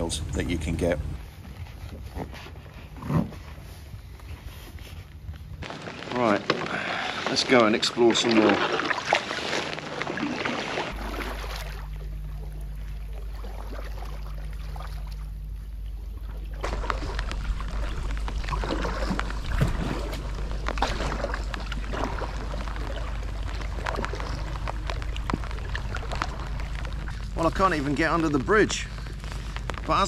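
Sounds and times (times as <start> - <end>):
low rumble: 0.0 - 2.1, 2.8 - 30.0
paddle splashing in water: 5.6 - 15.3, 15.9 - 28.2
water dripping: 5.6 - 30.0.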